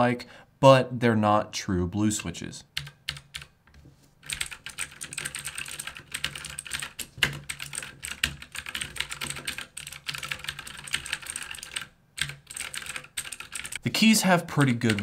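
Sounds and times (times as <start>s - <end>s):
mechanical keyboard typing: 2.8s - 3.5s, 4.2s - 13.8s, 14.6s - 15.0s.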